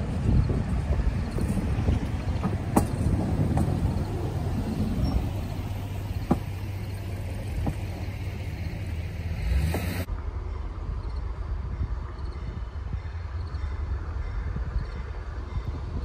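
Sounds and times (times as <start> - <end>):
wheels clicking on track: 0.0 - 10.8
pickup truck engine humming: 0.0 - 11.0.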